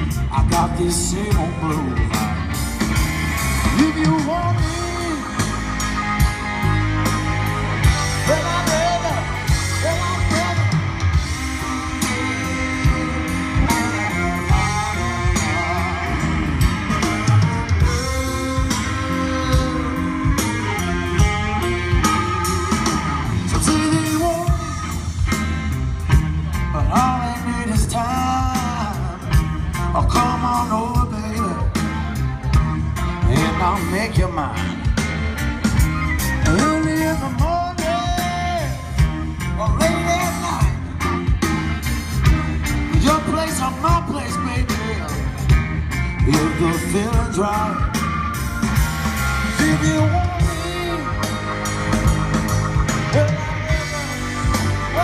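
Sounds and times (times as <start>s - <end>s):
live rock band: 0.0s - 55.0s
person singing: 8.2s - 25.0s, 36.2s - 40.8s, 49.4s - 55.0s.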